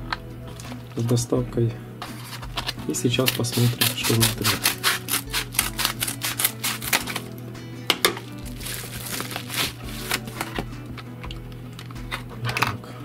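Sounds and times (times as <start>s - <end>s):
background music: 0.0s - 13.0s
paper rustling: 2.0s - 7.4s, 8.5s - 10.6s
scissors snipping paper mailer: 2.1s - 7.4s, 9.0s - 10.6s.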